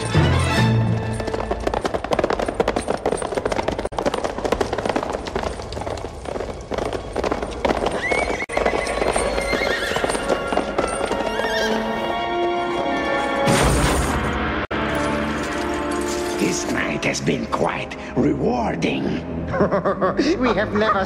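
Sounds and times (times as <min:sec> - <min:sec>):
film music: 0:00.0 - 0:04.7, 0:08.4 - 0:21.0
horse hooves galloping: 0:00.0 - 0:12.8
horse whinnying: 0:07.8 - 0:12.2.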